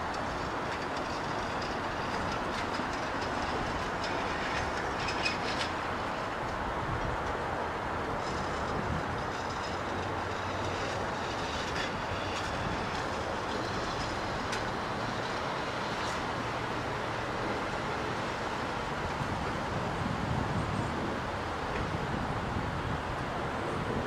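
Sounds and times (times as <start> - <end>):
steel wheels rumbling on rail: 0.0 - 24.0
wheels clicking over track: 0.0 - 24.0
faint high wheel squeal: 0.7 - 6.2.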